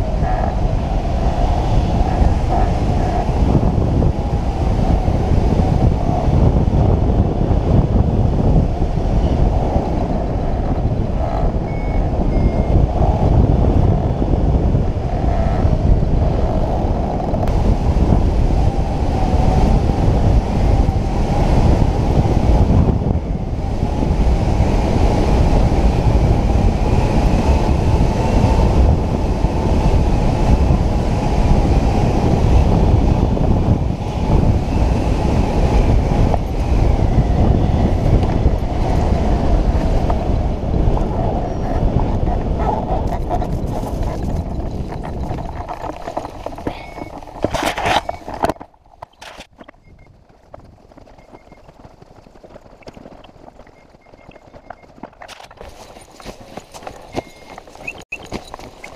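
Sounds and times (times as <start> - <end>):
wind buffeting microphone: 0.0 - 58.9.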